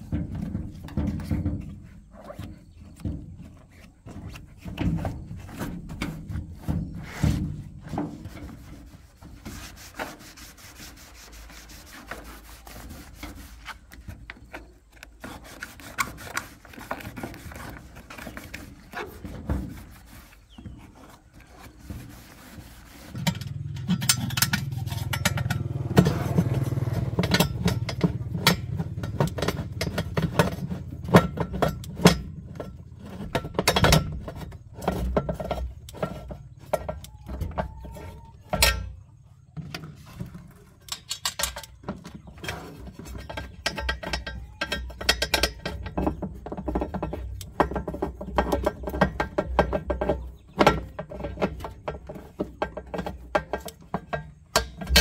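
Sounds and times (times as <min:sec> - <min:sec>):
hand tools clinking on metal: 0:23.2 - 0:39.0, 0:40.8 - 0:55.0.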